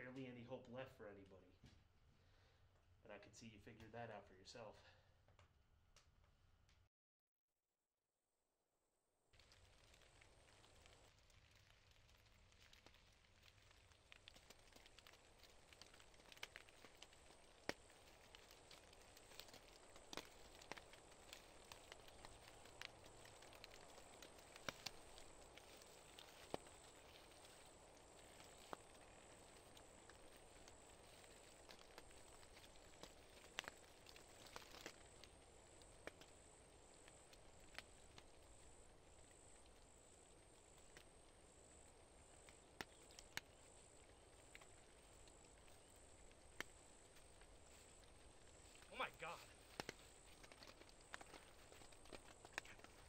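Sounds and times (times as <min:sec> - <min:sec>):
woodland background: 0:00.0 - 0:06.8, 0:09.3 - 0:53.0
footsteps in dry leaves: 0:18.0 - 0:35.0.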